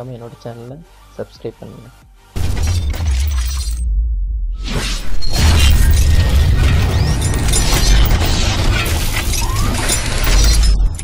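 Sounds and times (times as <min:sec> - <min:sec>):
music: 0:00.0 - 0:11.0
heavy steady bass: 0:03.8 - 0:04.6
dense mechanical clicking: 0:05.3 - 0:11.0.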